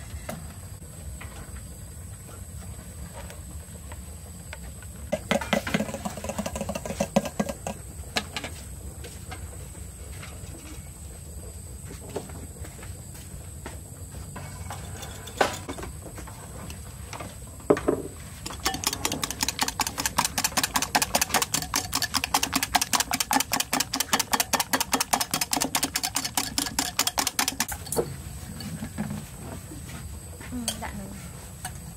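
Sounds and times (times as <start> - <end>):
whisk beating eggs in glass bowl: 5.1 - 7.7, 18.5 - 27.7.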